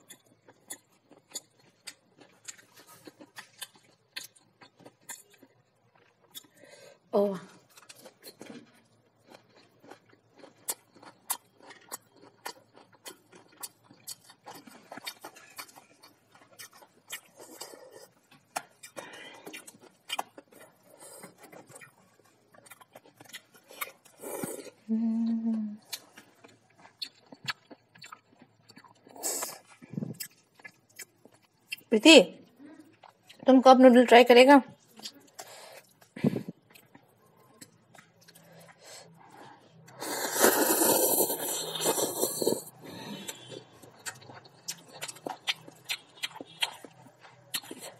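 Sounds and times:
person chewing noodles: 0.0s - 31.9s, 34.8s - 47.9s
person humming: 24.9s - 25.8s.

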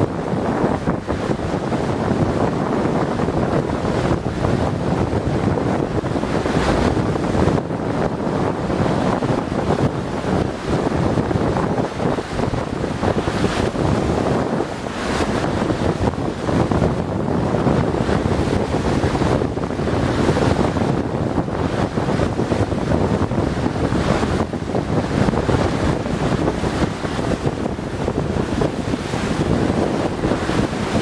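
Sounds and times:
sea water rushing around boat: 0.0s - 31.0s
wind buffeting microphone: 0.0s - 31.0s.

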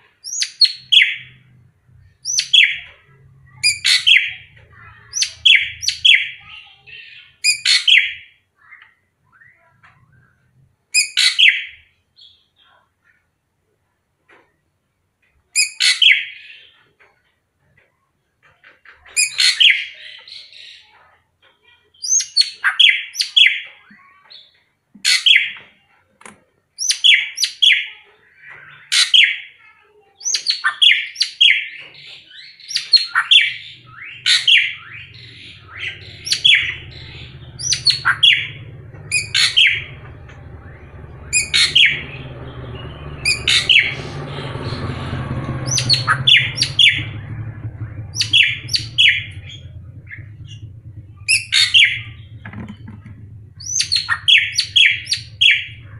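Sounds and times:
bird whistling calls: 32.3s - 40.0s, 40.6s - 44.9s, 45.6s - 47.3s, 48.0s - 52.4s, 53.6s - 55.9s
low rumble: 33.6s - 55.9s.

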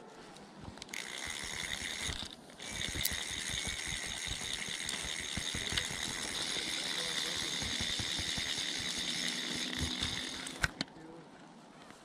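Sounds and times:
fishing reel ratchet buzzing: 0.8s - 10.8s.

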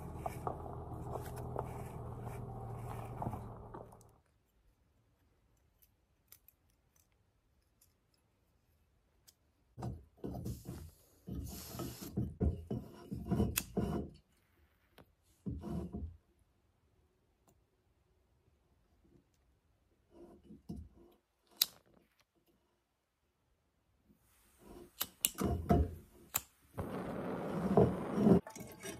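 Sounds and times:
camping stove scraping and clicking: 10.4s - 14.2s, 24.6s - 28.9s.

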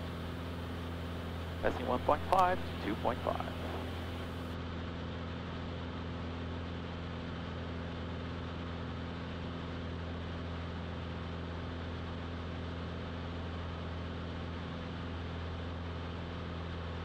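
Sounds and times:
light plane engine droning: 0.0s - 4.6s.

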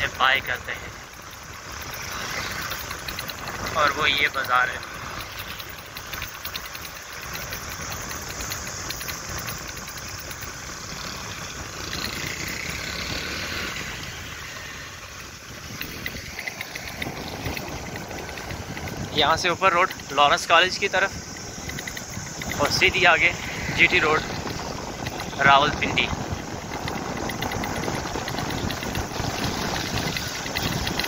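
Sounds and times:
road and wind noise: 0.0s - 31.0s
vehicle engine running: 0.0s - 31.0s.

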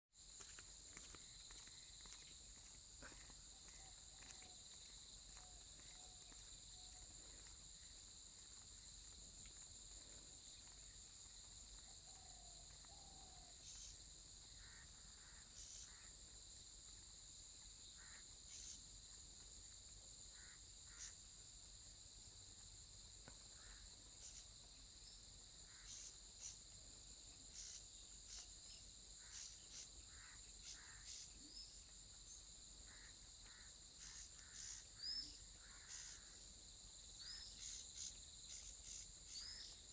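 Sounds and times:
insects trilling: 0.2s - 39.9s
short insect chirps: 27.5s - 36.4s, 37.1s - 39.9s.

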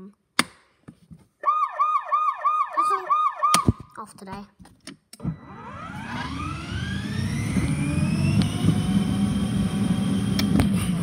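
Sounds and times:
toy car electric motor whining: 5.4s - 10.5s
low rumble of driving: 5.4s - 11.0s.

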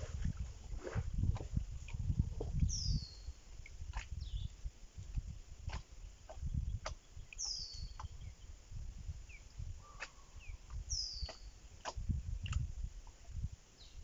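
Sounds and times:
low fluctuating rumble: 0.0s - 6.8s.

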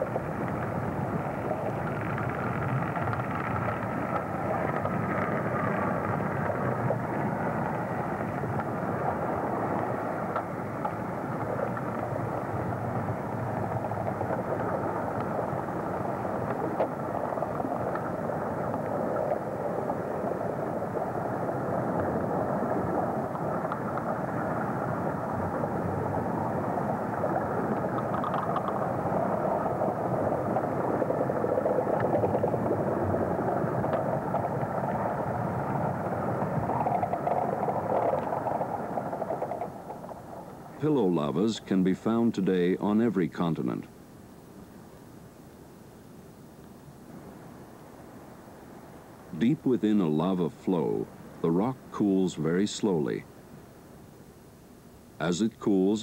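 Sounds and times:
underwater lava rumble and hiss: 0.0s - 55.2s
faint clicks: 1.4s - 12.2s, 13.8s - 20.0s, 23.2s - 24.7s, 27.2s - 29.5s, 33.5s - 35.2s.

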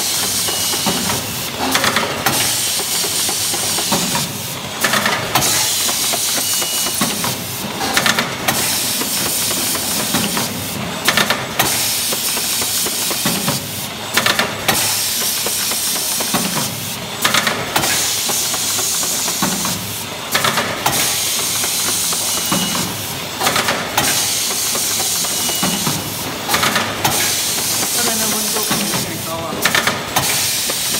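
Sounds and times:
machine hiss: 0.0s - 30.9s
machine clicks and clatter: 0.1s - 30.9s.

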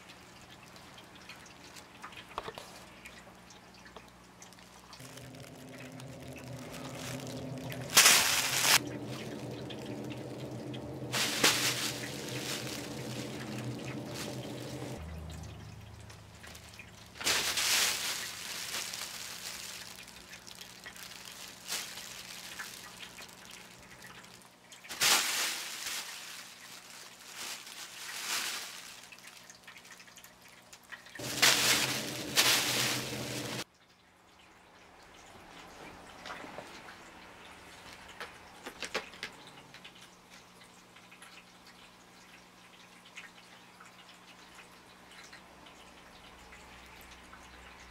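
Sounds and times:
crinkle tunnel rustling: 4.4s - 15.0s, 16.0s - 33.6s
steady low hum: 5.0s - 15.1s.

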